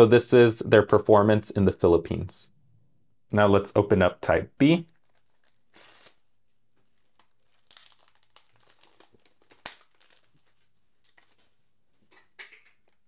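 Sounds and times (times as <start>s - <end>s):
plastic shrink-wrap crinkling: 4.8s - 11.6s.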